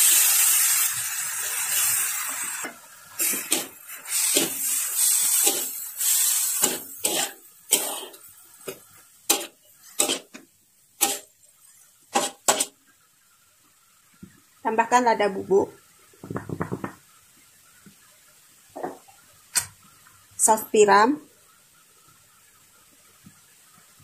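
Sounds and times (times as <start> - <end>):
food sizzling in hot wok: 0.0 - 13.9
spatula scraping and clanking wok: 3.2 - 10.4, 11.0 - 12.8.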